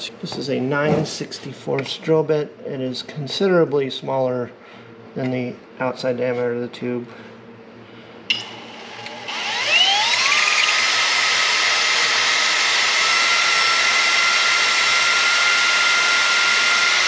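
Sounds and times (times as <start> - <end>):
cordless drill whining: 8.3 - 17.0
drill click: 8.3 - 17.0.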